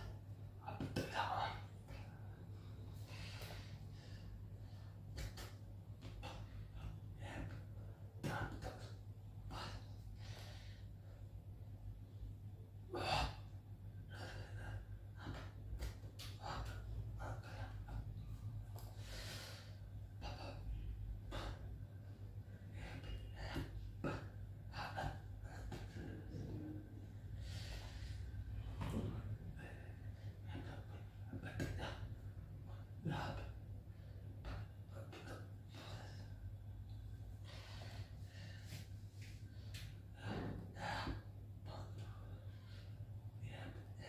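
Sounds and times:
steady low hum: 0.0s - 44.0s
man breathing: 1.2s - 44.0s.

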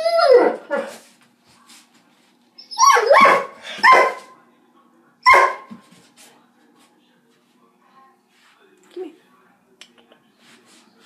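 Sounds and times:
dog barking: 2.9s - 4.3s, 5.3s - 5.7s.

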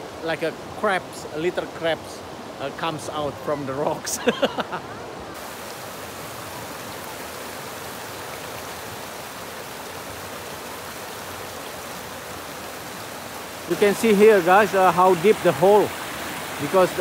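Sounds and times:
river rushing over rapids: 0.0s - 17.0s.

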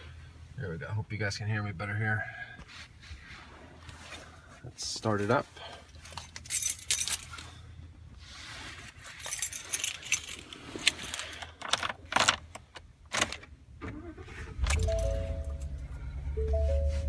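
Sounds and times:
keys jangling in ignition: 6.2s - 7.5s, 9.1s - 12.4s, 14.1s - 16.1s
car engine starting: 13.2s - 17.0s.

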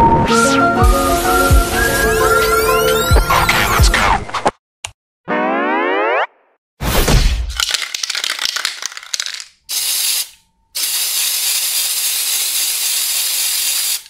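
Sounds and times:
spray hiss: 0.9s - 2.6s, 9.7s - 14.0s
spray can rattling: 7.6s - 14.0s.

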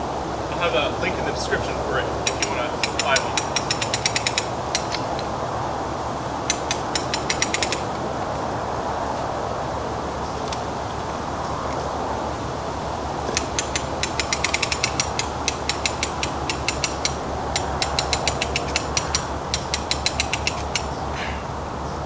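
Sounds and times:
ratchet pawl clicking: 2.2s - 5.3s, 6.5s - 8.0s, 13.3s - 21.0s.

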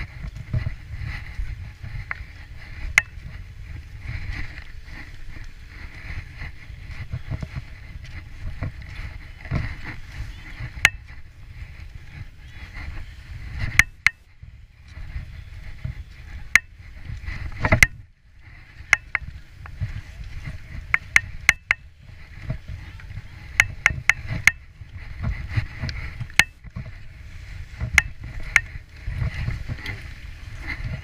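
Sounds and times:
skis scraping over snow: 0.0s - 13.8s, 14.4s - 31.0s
wind rumble on microphone: 0.0s - 31.0s
ski poles clicking together: 13.6s - 14.2s, 16.5s - 18.0s, 18.8s - 21.8s, 22.4s - 24.6s, 25.2s - 26.9s.

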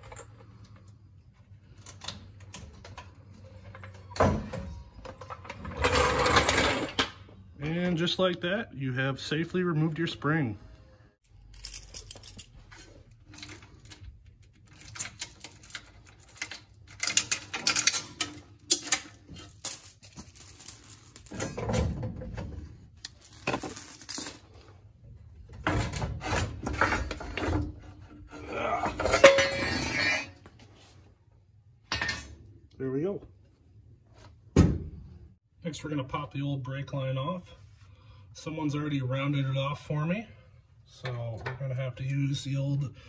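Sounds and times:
chain and padlock rattling: 11.4s - 21.7s.

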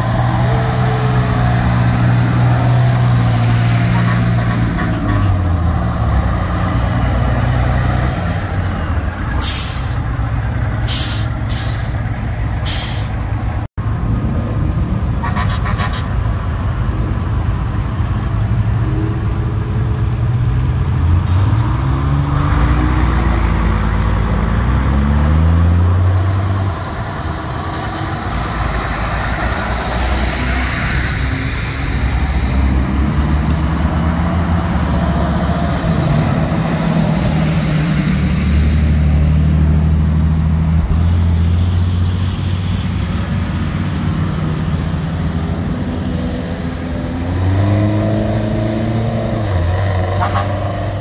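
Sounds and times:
heavy truck engines droning: 0.0s - 51.0s
engine revving: 18.8s - 51.0s.

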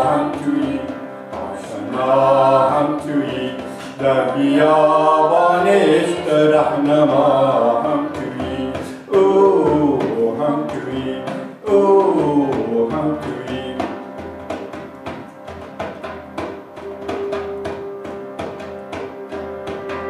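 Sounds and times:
man singing chant-like melody: 0.0s - 14.0s
harmonium drone: 0.0s - 20.0s
frame drum taps: 8.0s - 20.0s.

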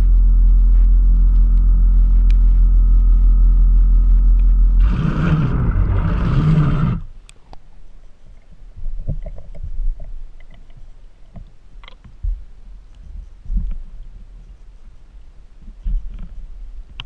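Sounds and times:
underwater thruster motors: 0.0s - 7.1s
faint clicks and knocks: 9.0s - 13.8s.

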